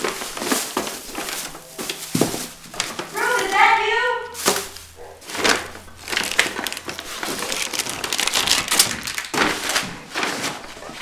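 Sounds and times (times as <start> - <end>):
material crinkling and rustling: 0.0 - 11.0.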